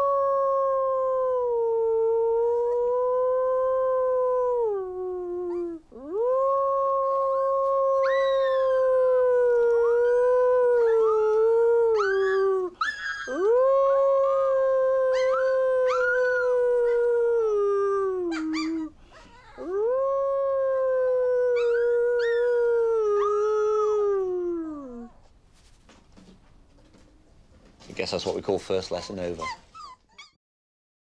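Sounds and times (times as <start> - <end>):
man howling: 0.0 - 18.9, 19.6 - 25.2
wolf pup howling: 0.0 - 25.2.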